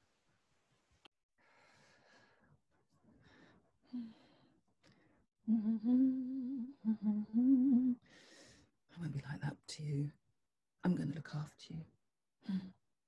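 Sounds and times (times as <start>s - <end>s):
woman breathing and sighing: 1.4s - 6.5s, 7.3s - 8.7s
woman humming: 5.5s - 8.0s.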